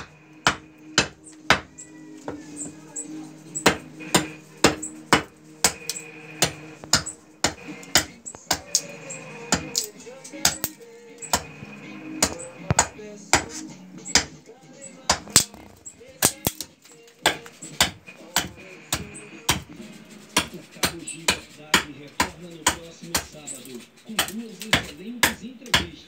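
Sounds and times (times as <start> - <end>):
hatchet chopping wood: 0.0 - 1.7, 3.6 - 8.9, 9.5 - 11.5, 12.2 - 14.4, 15.1 - 15.6, 16.2 - 19.7, 20.4 - 23.4, 24.2 - 26.0.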